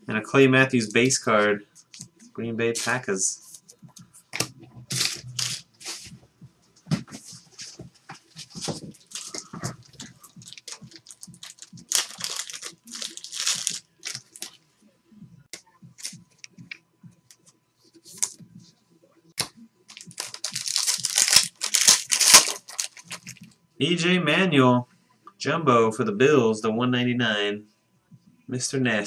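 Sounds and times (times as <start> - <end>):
foil wrapper crinkling and tearing: 8.9 - 14.6, 19.9 - 23.4.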